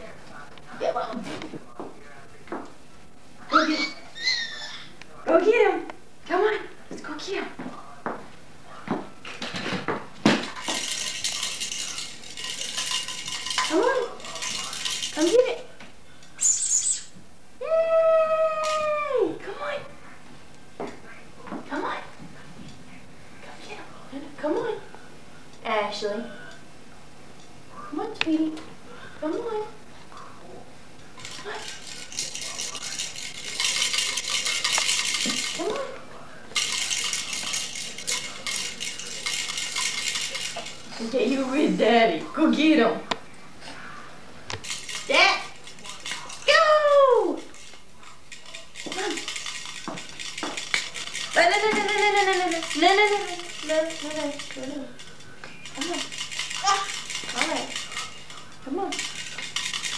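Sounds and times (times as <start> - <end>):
metallic jingling and rattling: 10.4 - 15.6, 31.2 - 41.8, 44.6 - 59.9.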